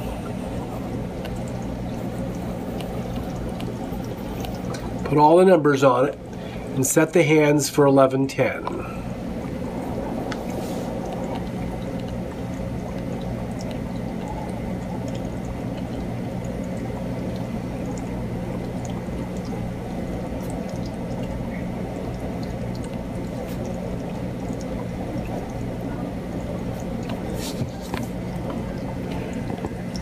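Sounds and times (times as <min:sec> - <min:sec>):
low hum: 0:00.0 - 0:30.0
low rushing noise: 0:08.7 - 0:12.5.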